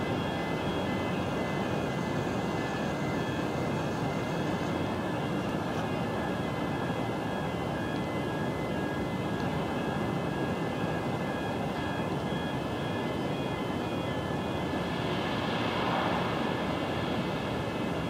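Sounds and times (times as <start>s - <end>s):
crane machinery drone: 0.0s - 18.0s.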